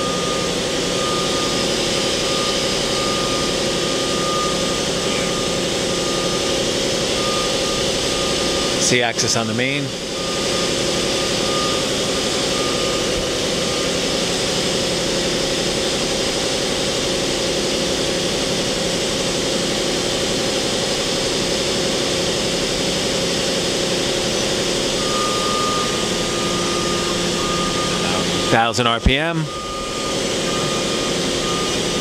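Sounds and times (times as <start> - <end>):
machine motors humming and whining: 0.0 - 32.0
thin high tone: 24.9 - 32.0.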